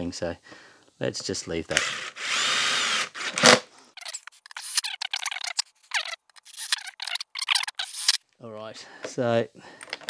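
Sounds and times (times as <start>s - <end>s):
drill bit scraping on screws: 1.7s - 8.2s.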